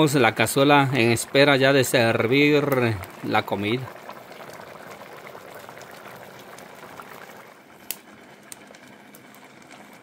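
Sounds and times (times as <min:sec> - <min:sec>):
stew bubbling: 0:00.0 - 0:07.7.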